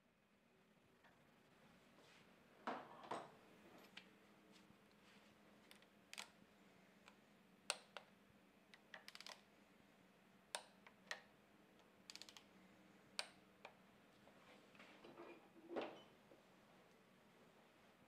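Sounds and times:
hand ratchet clicking: 0:08.9 - 0:09.4, 0:12.1 - 0:12.4
rapid ratchet clicks: 0:08.9 - 0:09.4, 0:12.1 - 0:12.4.

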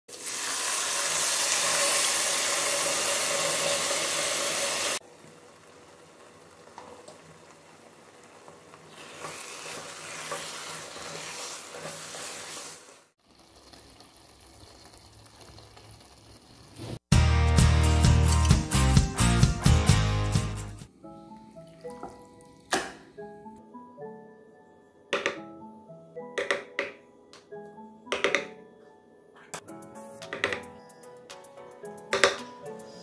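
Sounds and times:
meat sizzling in a pan: 0:00.1 - 0:17.0
spatula stirring meat: 0:08.9 - 0:12.8.

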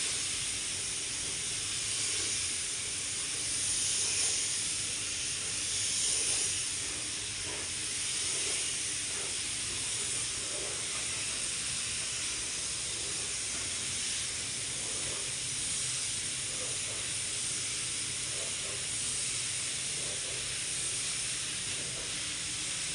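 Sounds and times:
paint spray gun hissing: 0:00.0 - 0:22.9.

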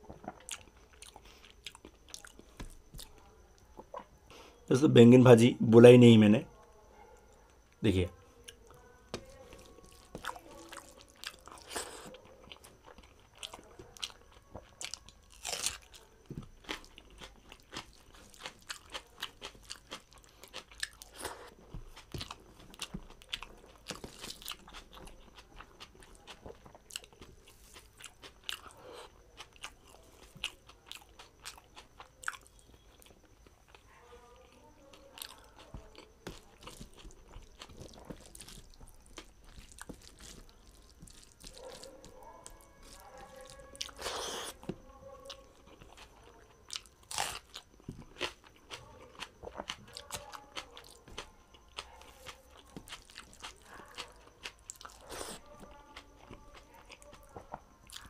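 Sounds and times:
man chewing and crunching food: 0:00.0 - 0:04.6, 0:07.2 - 0:58.0.

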